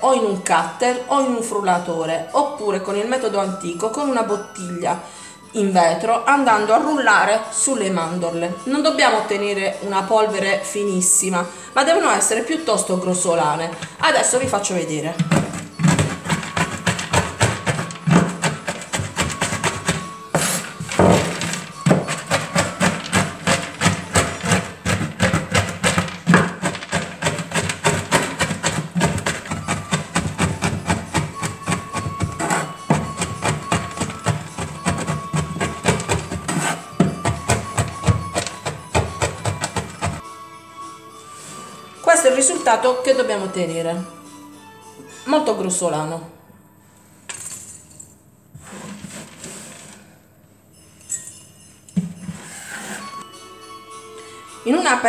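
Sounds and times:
knife chopping nuts on wooden board: 0:15.2 - 0:40.2.

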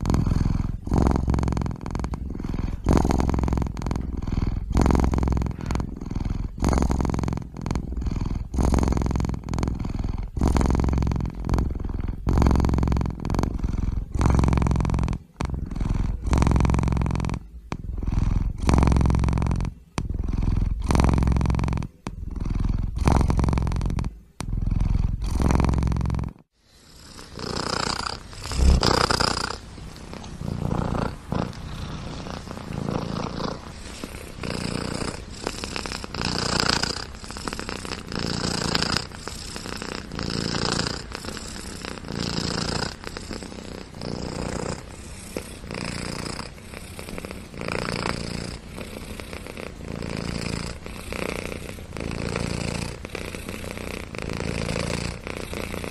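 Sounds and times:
cat purring: 0:00.0 - 0:55.9.

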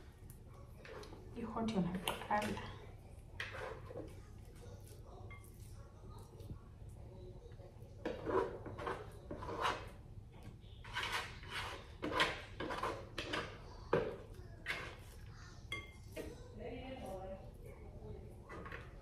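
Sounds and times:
fingers scraping dough in basin: 0:08.0 - 0:10.0, 0:10.8 - 0:13.7.

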